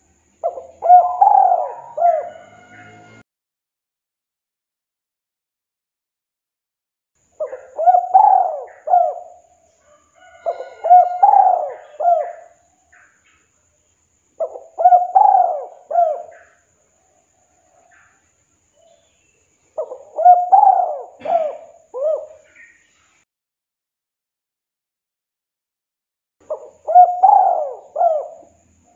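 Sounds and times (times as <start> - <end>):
dove cooing: 0.0 - 3.2, 7.4 - 9.5, 10.1 - 13.1, 14.4 - 18.1, 19.7 - 22.7, 26.4 - 28.9.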